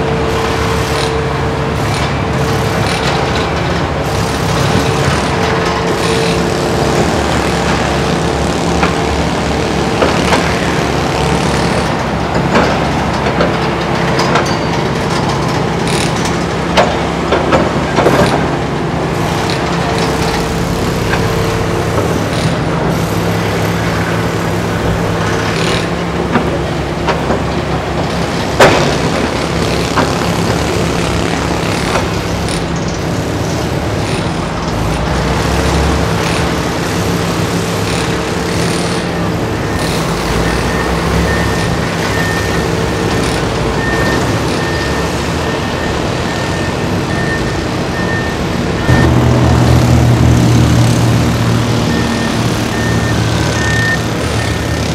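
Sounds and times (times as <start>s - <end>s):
excavator diesel engine running: 0.0s - 54.9s
pitched hum: 48.8s - 54.1s.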